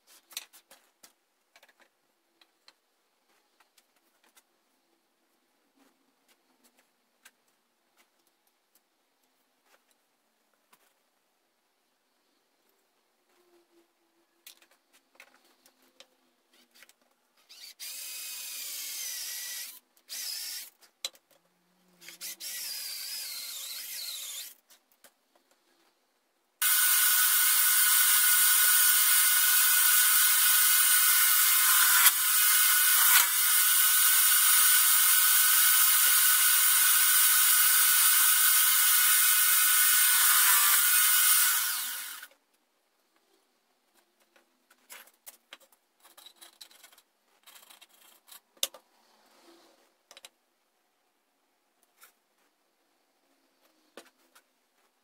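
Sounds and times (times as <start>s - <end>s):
power tool motor running: 26.6s - 42.3s.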